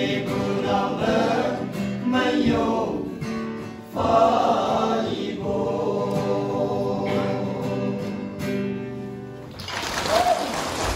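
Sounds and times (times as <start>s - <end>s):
men singing a hymn: 0.0s - 8.7s.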